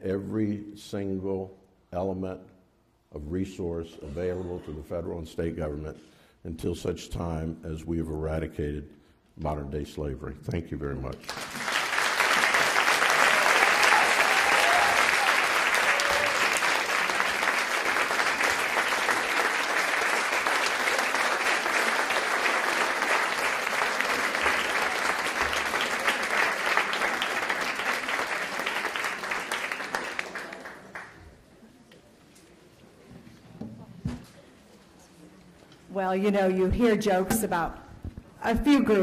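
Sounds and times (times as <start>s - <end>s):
audience applauding: 11.2s - 31.2s.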